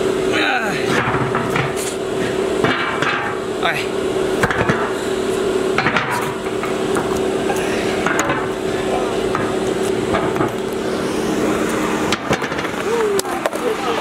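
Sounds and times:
steady hum: 0:00.0 - 0:14.0
metal knocks: 0:02.6 - 0:03.4, 0:05.8 - 0:07.2, 0:08.0 - 0:08.6, 0:09.3 - 0:10.6.

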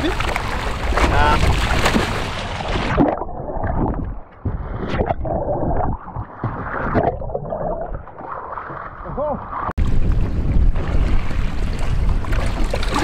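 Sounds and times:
water splashing against boat hull: 0:00.0 - 0:13.0.

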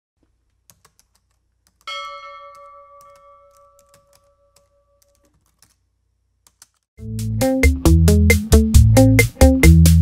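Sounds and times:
keyboard typing clicks: 0:00.6 - 0:01.9, 0:02.5 - 0:05.8, 0:06.4 - 0:06.8
bell ding: 0:01.9 - 0:05.0.

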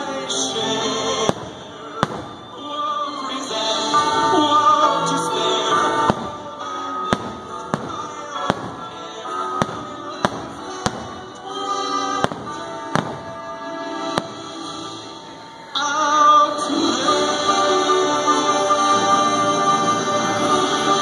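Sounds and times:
fireworks show music: 0:00.0 - 0:21.0
distant firework bangs: 0:01.2 - 0:02.7, 0:06.0 - 0:14.8.

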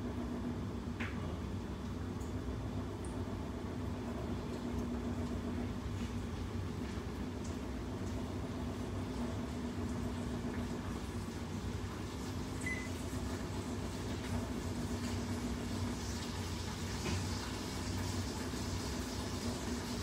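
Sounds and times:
fan motor humming: 0:00.0 - 0:20.0
high beep: 0:12.6 - 0:12.9.

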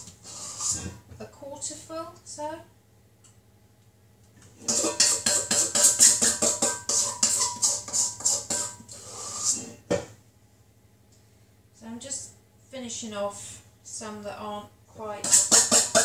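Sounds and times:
spoon scraping metal bowl: 0:00.0 - 0:01.0, 0:04.6 - 0:09.8, 0:15.2 - 0:16.0.

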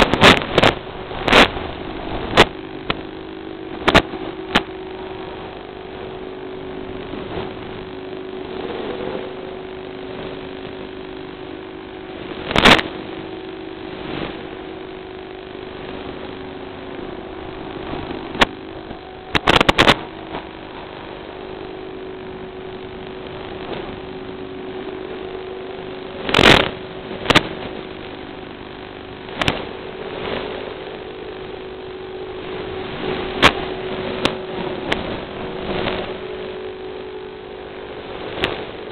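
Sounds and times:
drone motors buzzing: 0:00.0 - 0:38.9
static crackles: 0:00.0 - 0:38.9.

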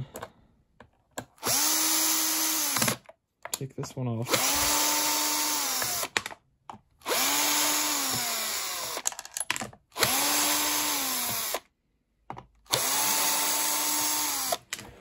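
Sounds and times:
cordless drill motor whirring: 0:01.4 - 0:03.0, 0:04.3 - 0:06.1, 0:07.0 - 0:09.0, 0:10.0 - 0:11.7, 0:12.7 - 0:14.8.

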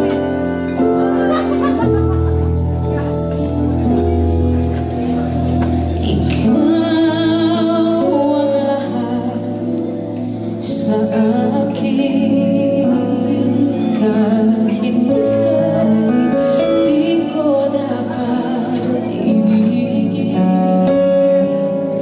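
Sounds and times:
instrumental accompaniment: 0:00.0 - 0:22.0
woman singing a ballad: 0:05.8 - 0:22.0.

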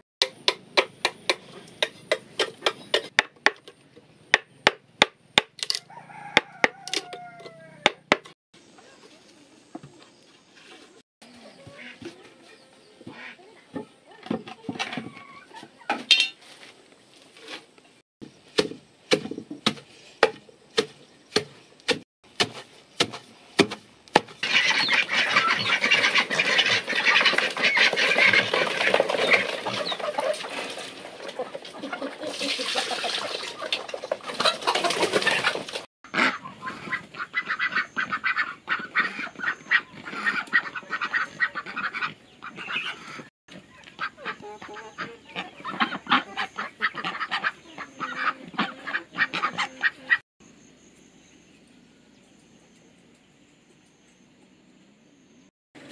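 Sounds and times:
flock of poultry calling: 0:05.8 - 0:07.9, 0:15.1 - 0:15.9, 0:24.4 - 0:50.2.

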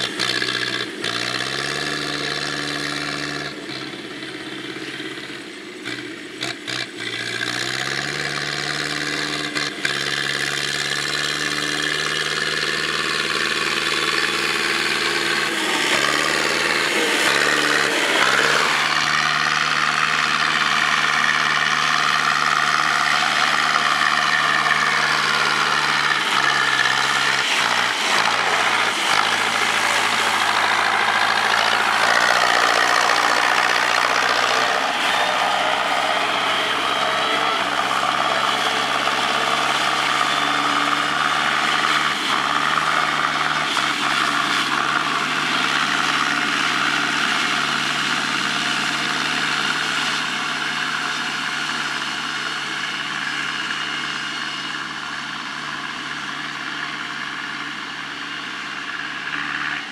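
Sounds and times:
tractor diesel engine running: 0:00.0 - 0:59.9.

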